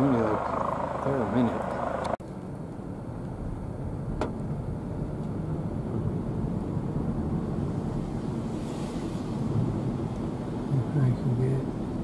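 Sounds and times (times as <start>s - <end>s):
helicopter rotor and turbine rumble: 0.0s - 2.2s.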